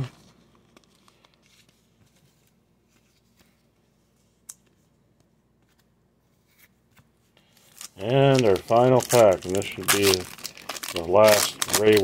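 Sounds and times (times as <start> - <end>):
card in plastic sleeve handling: 0.0 - 3.6, 5.6 - 12.0.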